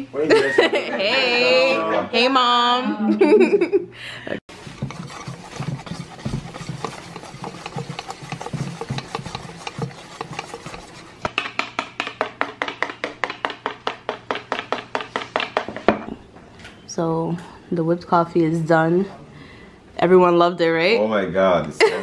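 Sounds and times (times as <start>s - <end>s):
wire whisk scraping metal bowl: 4.5s - 11.3s.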